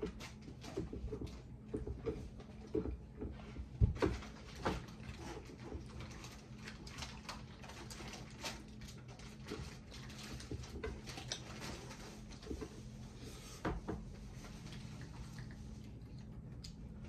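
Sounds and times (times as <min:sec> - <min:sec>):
steady low hum: 0:00.0 - 0:17.0
chewing and lip smacks: 0:14.6 - 0:17.0.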